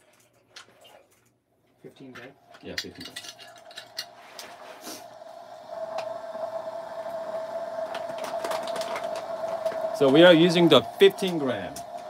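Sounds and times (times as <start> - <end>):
coffee gear clicking and clinking: 2.5 - 4.2
steady even tone: 3.6 - 12.0.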